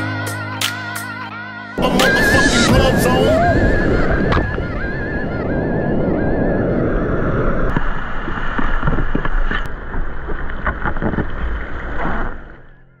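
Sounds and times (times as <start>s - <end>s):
wind rumble on microphone: 1.8s - 12.7s
water splashing around kayaks: 7.7s - 12.6s.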